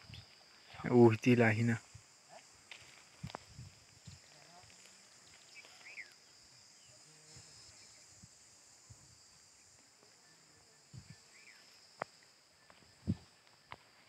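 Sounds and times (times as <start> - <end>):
high-pitched insect drone: 0.0 - 14.0
bird chirp: 5.3 - 7.0, 9.6 - 11.8.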